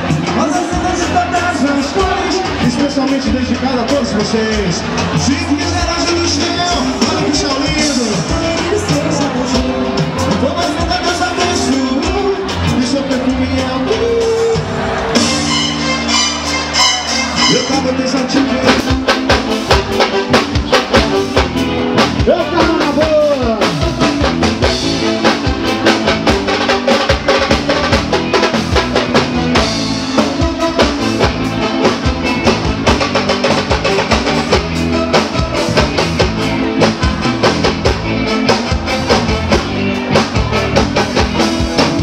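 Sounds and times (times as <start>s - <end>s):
drum kit beat: 0.0s - 42.0s
live band music: 0.0s - 42.0s
person singing: 6.4s - 14.8s, 30.0s - 32.5s, 34.3s - 37.4s.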